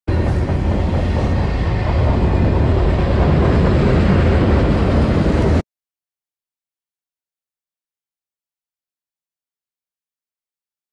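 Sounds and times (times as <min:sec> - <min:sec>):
train wheels rumbling on rails: 0:00.1 - 0:05.6.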